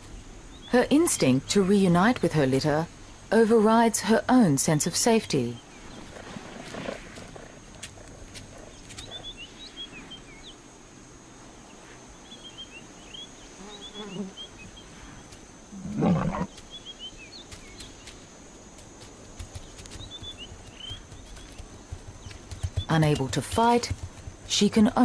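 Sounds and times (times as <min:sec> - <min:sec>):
small birds chirping: 0:05.3 - 0:10.6, 0:11.6 - 0:18.2, 0:19.4 - 0:25.0
lioness growling: 0:05.9 - 0:09.5, 0:15.7 - 0:16.6.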